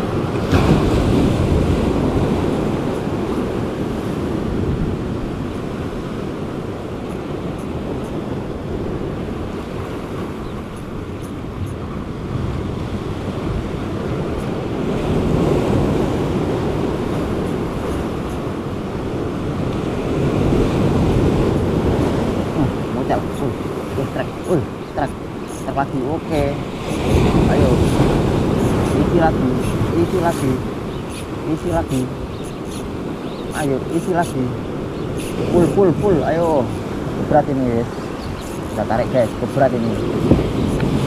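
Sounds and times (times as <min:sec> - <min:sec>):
sea surf washing on shore: 0:00.0 - 0:41.0
wind rumbling on microphone: 0:00.0 - 0:41.0.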